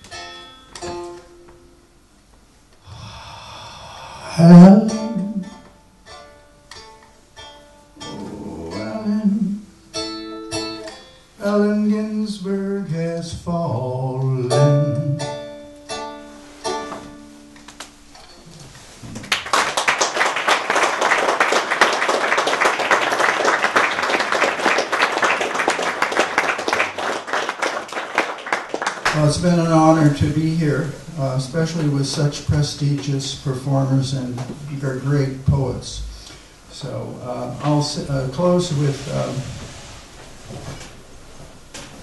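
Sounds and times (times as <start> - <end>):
plucked lute: 0.0 - 1.8, 4.4 - 11.6, 13.7 - 18.6
man singing: 8.0 - 9.6, 11.4 - 15.3
audience applause: 19.0 - 29.4.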